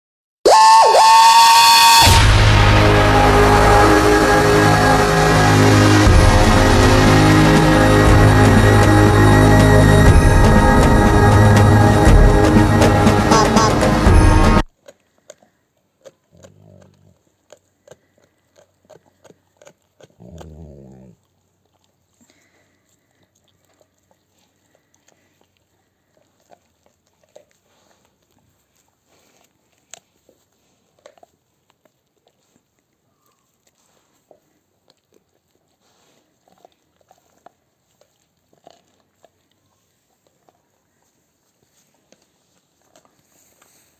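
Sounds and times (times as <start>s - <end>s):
low groaning sounds: 2.1s - 14.6s
dog chewing and licking: 14.6s - 43.9s.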